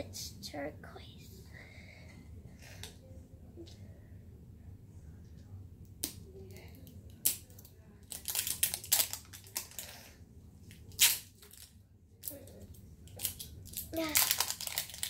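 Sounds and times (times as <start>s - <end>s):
plastic wrapping crinkling and snapping: 7.2s - 10.0s, 10.9s - 12.4s, 13.1s - 15.0s.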